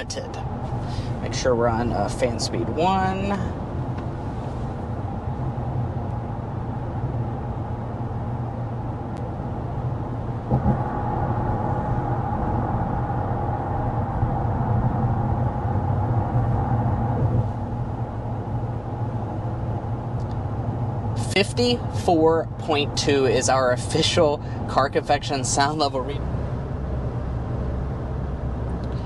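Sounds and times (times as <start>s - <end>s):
climate fan: 0.0s - 29.0s
tyre and road rumble: 0.0s - 29.0s
wind noise: 3.4s - 21.1s.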